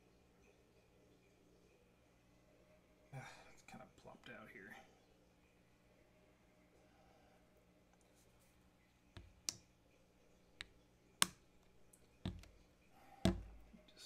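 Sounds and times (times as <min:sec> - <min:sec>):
plastic cap clicking shut: 0:13.3 - 0:13.6.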